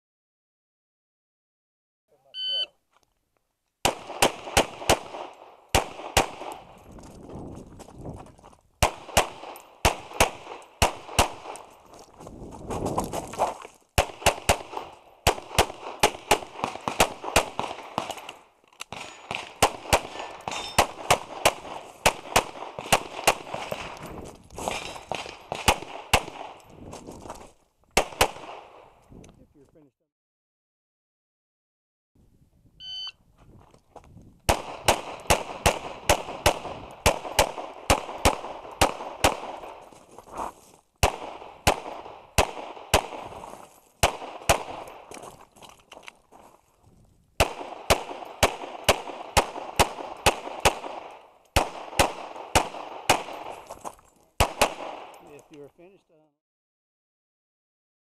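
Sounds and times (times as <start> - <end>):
shot timer beep: 2.4 - 2.7, 32.8 - 33.2
rapid pistol fire: 3.8 - 6.7, 8.8 - 11.6, 14.0 - 18.2, 18.9 - 23.9, 25.1 - 26.6, 28.0 - 28.9, 34.5 - 39.8, 41.0 - 43.4, 44.0 - 45.1, 47.4 - 53.5, 54.4 - 55.4.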